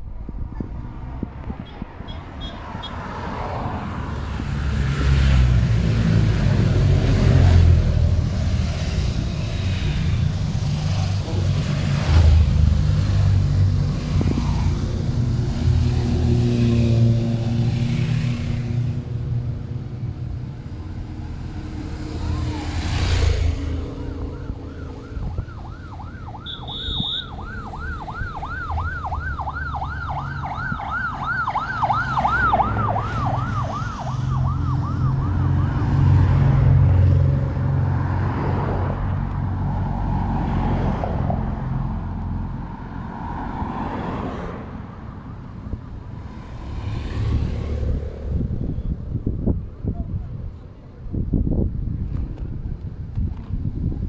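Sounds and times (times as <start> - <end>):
motorcycles and cars passing: 0.0 - 54.0
siren sweeping up and down: 20.7 - 36.7.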